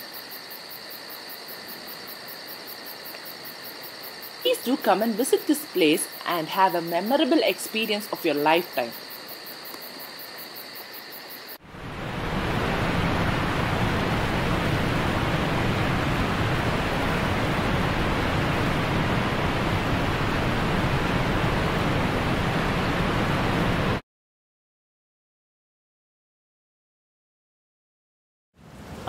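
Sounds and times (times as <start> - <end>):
water rushing over a weir: 11.6 - 24.0.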